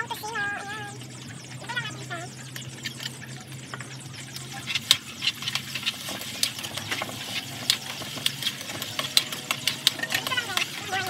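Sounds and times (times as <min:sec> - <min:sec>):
meat sizzling in hot oil: 0:04.6 - 0:11.0.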